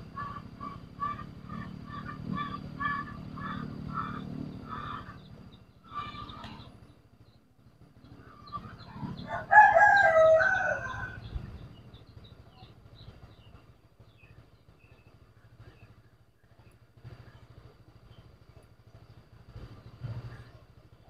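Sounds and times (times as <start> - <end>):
small birds chirping: 0.0 - 21.0
rooster crowing: 8.9 - 11.3.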